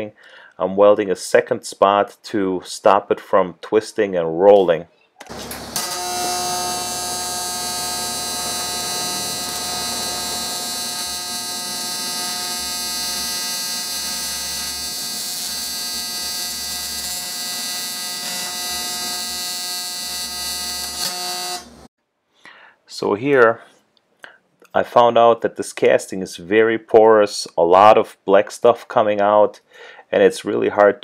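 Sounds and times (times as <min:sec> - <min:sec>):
welding arc buzzing: 0:05.2 - 0:21.9.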